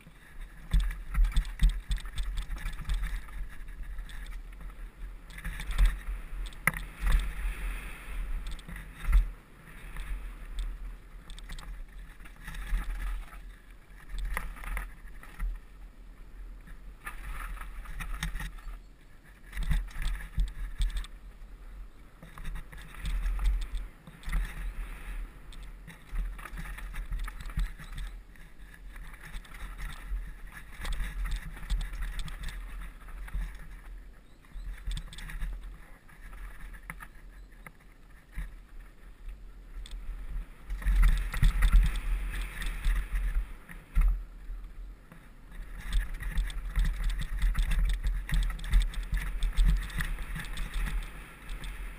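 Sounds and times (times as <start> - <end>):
bike knocking and rattling: 0.0 - 7.6, 17.0 - 21.1, 22.2 - 24.8, 25.6 - 38.6, 40.5 - 44.2, 45.1 - 51.9
bike tyres on gravel: 0.0 - 21.4, 22.1 - 51.9
wind buffeting camera: 0.0 - 51.9.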